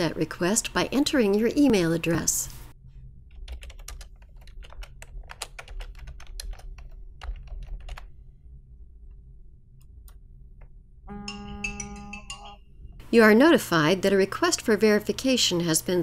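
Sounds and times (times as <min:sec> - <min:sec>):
faint low hum: 0:00.0 - 0:16.0
keyboard typing: 0:03.3 - 0:08.1.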